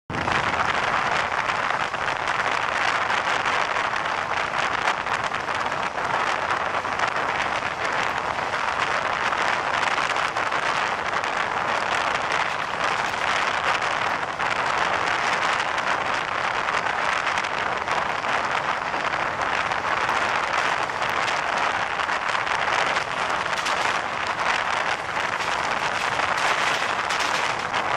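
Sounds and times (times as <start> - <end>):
train rushing at speed: 5.6 - 16.0, 19.4 - 27.9.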